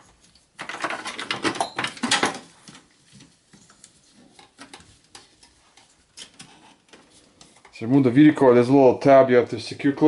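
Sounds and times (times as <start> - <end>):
plastic parts rustling and clicking: 0.0 - 7.8.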